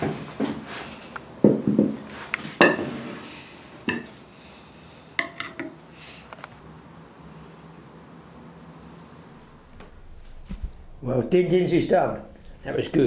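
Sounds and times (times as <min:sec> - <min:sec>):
china dishes set on wooden table: 0:02.6 - 0:04.1, 0:05.2 - 0:05.8.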